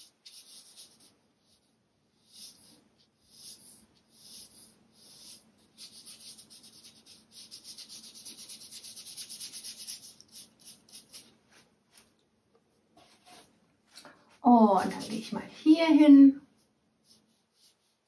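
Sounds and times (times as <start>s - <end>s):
brush scrubbing on paper: 0.0s - 12.0s, 16.6s - 18.0s.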